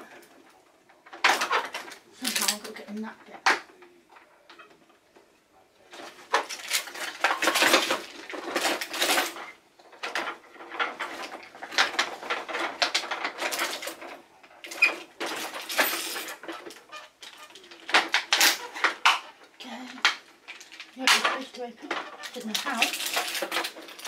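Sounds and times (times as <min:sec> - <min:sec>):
plastic toy truck clattering: 0:00.0 - 0:05.0, 0:05.8 - 0:24.0.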